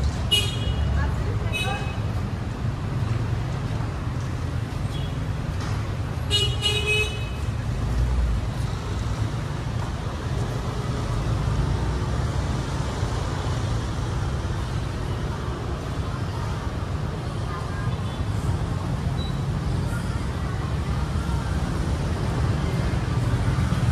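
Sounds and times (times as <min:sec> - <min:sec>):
traffic engines rumbling: 0:00.0 - 0:23.9.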